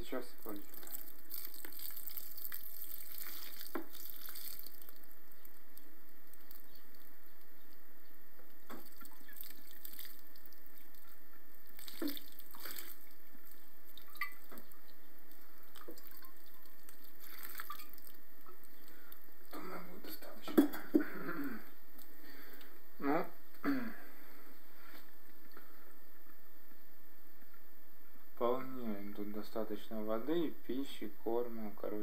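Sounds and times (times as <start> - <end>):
water dripping onto soil: 0.4 - 7.4, 8.6 - 19.2.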